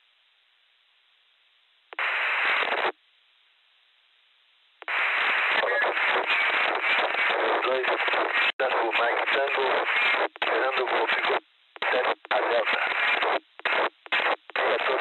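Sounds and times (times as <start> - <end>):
faint radio hiss: 0.0 - 15.0
loud radio static burst: 2.0 - 2.9, 4.8 - 15.0
distorted voice in static: 2.0 - 3.0, 4.8 - 15.0.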